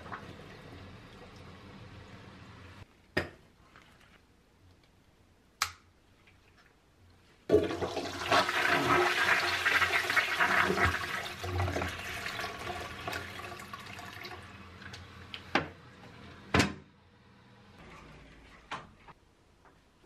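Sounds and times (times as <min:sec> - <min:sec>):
toilet flushing: 0:00.0 - 0:02.8, 0:07.5 - 0:16.6.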